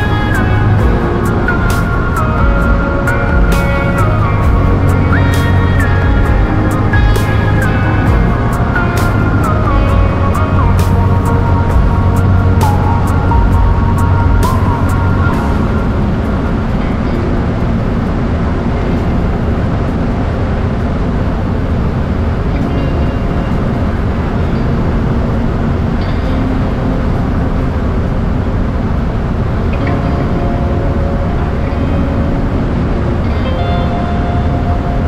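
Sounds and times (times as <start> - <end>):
airplane engine and propeller drone: 0.0 - 35.0
rushing air: 0.0 - 35.0.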